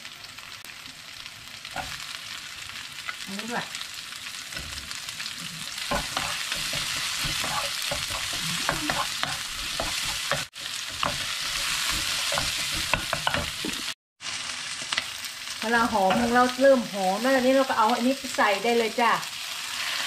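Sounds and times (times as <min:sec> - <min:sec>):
food sizzling in hot oil: 0:00.0 - 0:20.0
wooden spatula scraping a pan: 0:05.5 - 0:13.9.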